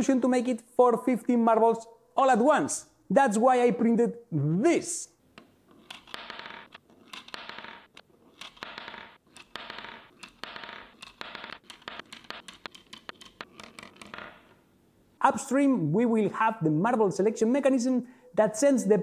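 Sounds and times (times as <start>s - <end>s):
marbles rolling down plastic ramps: 5.7s - 14.5s
marbles clicking together: 5.8s - 14.5s.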